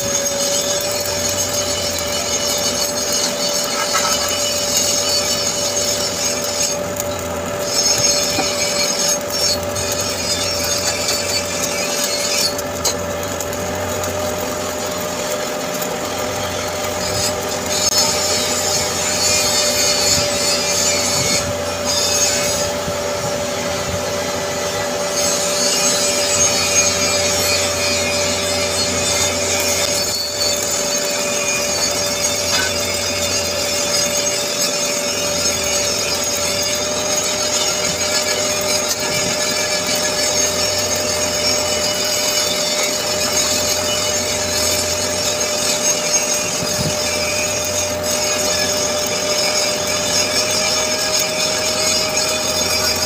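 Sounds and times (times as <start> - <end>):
welding arc crackling and hissing: 0.0 - 53.0.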